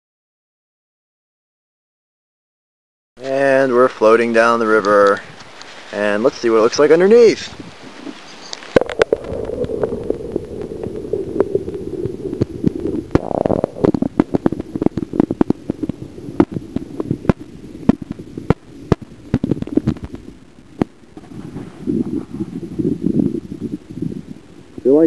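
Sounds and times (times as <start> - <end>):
muffled underwater rumble: 7.6 - 25.0.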